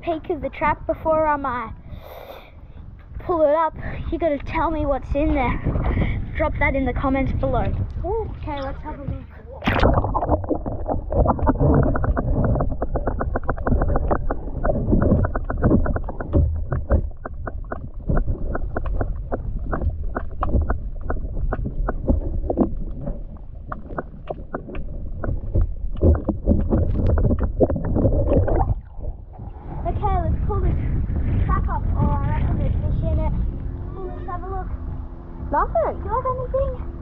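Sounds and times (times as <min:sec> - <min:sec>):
underwater water rumble: 0:02.6 - 0:37.0
sharp crackling clicks: 0:09.6 - 0:28.8.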